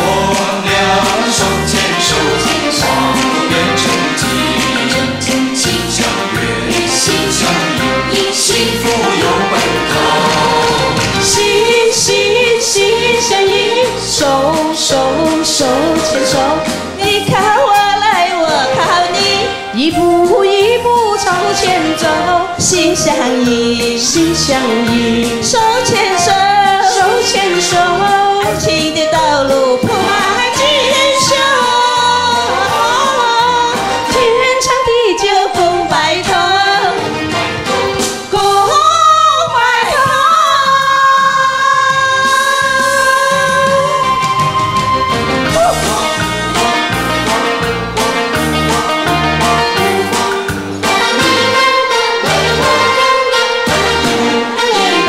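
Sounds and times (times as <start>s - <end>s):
instrumental accompaniment: 0.0s - 55.0s
pop backing music with steady beat: 0.0s - 55.0s
wavering melody with vibrato: 0.2s - 37.5s, 48.7s - 55.0s.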